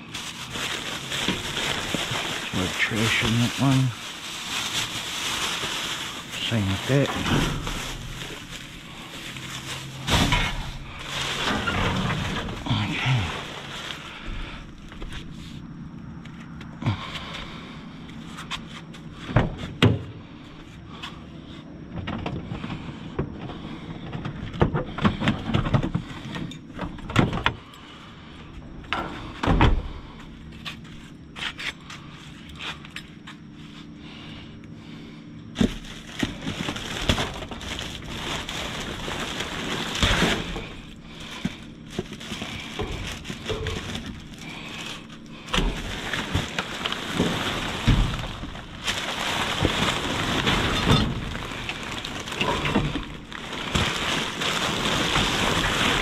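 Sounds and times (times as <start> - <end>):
plastic bags rustling and crinkling: 0.0 - 15.7, 35.5 - 56.0.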